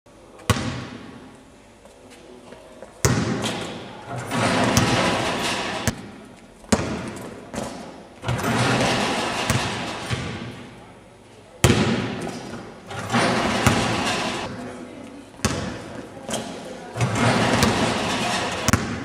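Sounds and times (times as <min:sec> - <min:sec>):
basketball bouncing with echo: 0:00.4 - 0:01.2, 0:03.0 - 0:10.8, 0:11.6 - 0:14.5, 0:15.4 - 0:19.0
crowd voices: 0:10.5 - 0:18.8.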